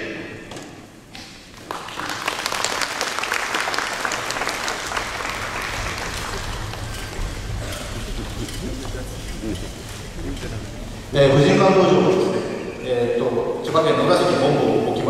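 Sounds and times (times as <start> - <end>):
audience applauding: 1.5 - 10.6.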